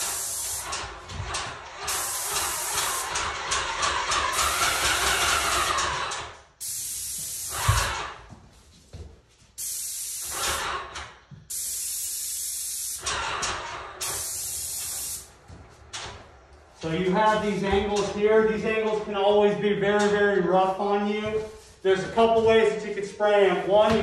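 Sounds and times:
paint sprayer hissing: 0.0s - 8.3s, 9.6s - 15.6s.

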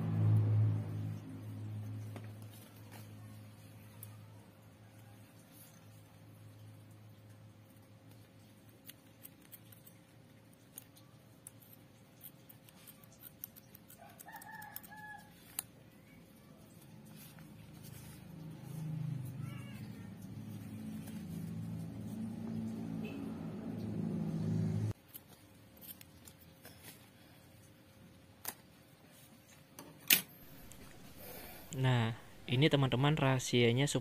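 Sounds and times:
scissors snipping rubber glove: 8.6s - 15.8s.

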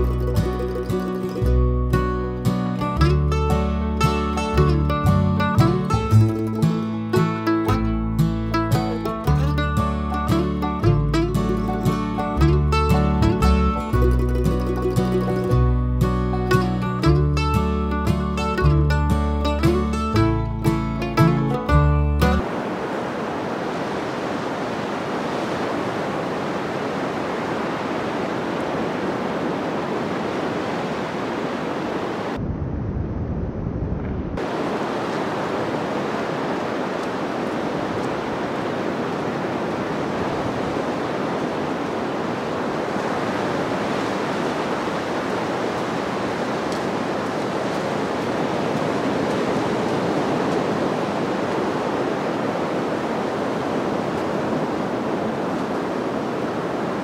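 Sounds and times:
waves breaking on beach: 0.0s - 1.6s, 22.3s - 32.4s, 34.4s - 57.0s
low rumble on microphone: 32.4s - 34.4s.

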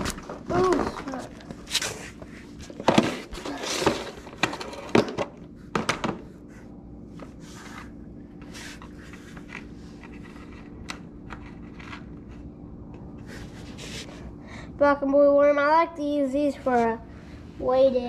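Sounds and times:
soft rustling and scraping: 7.1s - 12.5s.

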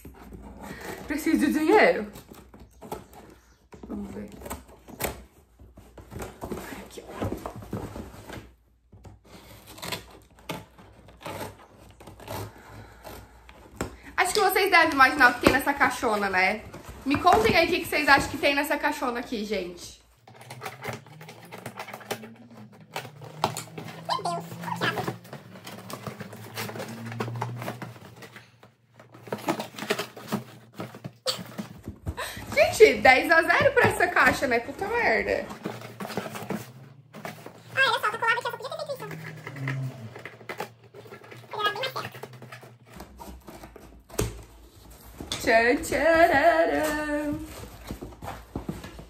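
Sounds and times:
cardboard rustling: 0.0s - 49.0s
scissors cutting cardboard: 9.0s - 15.8s, 20.2s - 32.1s
packing tape being cut: 9.2s - 13.4s.

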